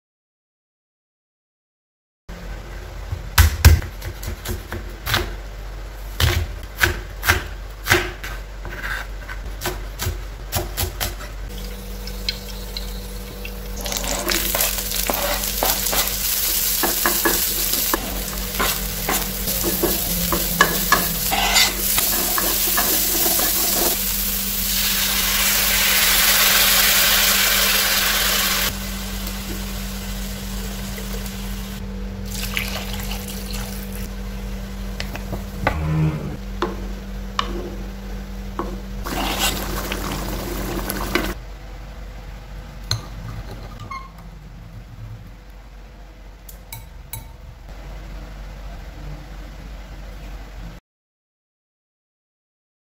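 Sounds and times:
steady low hum: 2.3 - 50.8
vegetables sizzling in a wok: 11.5 - 35.6, 36.6 - 41.4.

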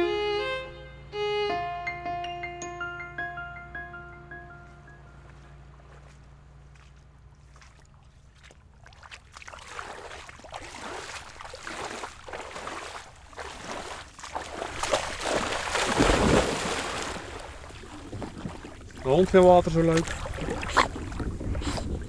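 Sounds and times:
person wading through water: 5.1 - 22.0
dog splashing through water: 6.8 - 22.0.

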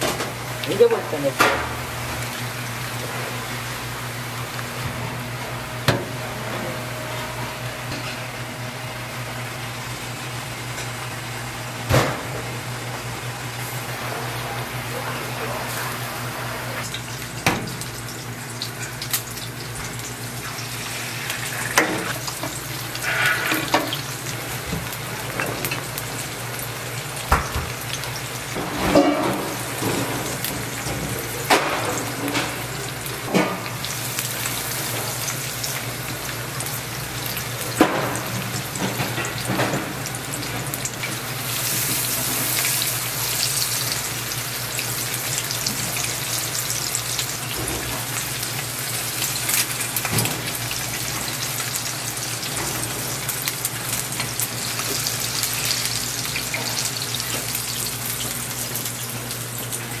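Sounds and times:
eggs sizzling in oil: 13.0 - 60.0.

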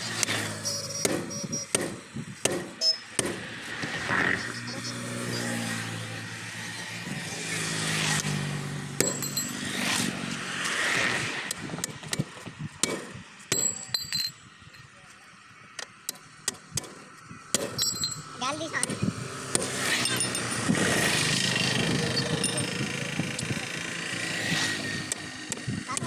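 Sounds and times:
vehicle engine hum: 0.0 - 26.0
sledgehammer striking metal lever: 9.0 - 9.5.

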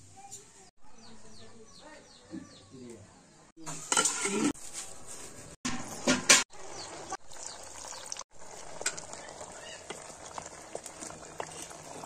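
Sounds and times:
water boiling in pot: 5.8 - 12.0.

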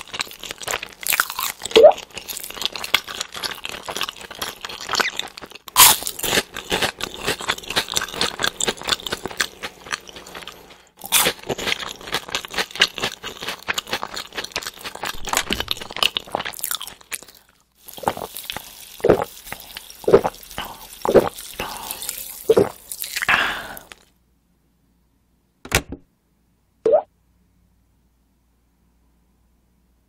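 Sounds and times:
crunchy chewing: 0.0 - 24.1
faint fizz: 17.8 - 24.1.

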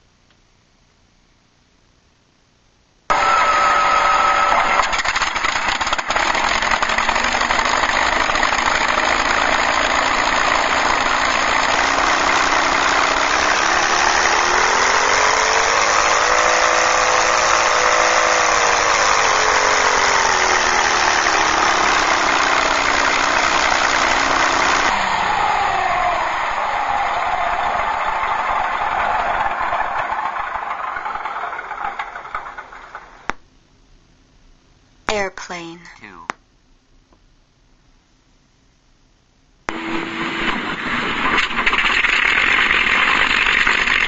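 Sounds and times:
short whine: 3.1 - 30.0, 39.7 - 44.0
piston engine through small speakers: 3.1 - 30.1.

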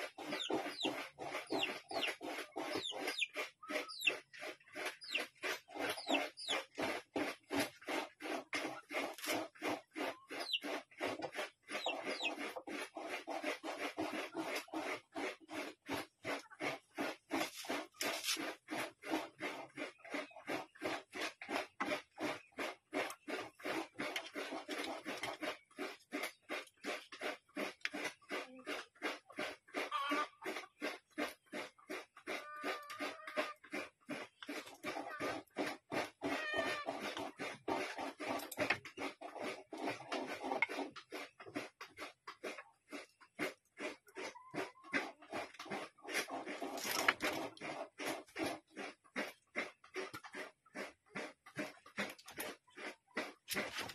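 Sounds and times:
rhythmic rasping scraping: 0.0 - 53.9.

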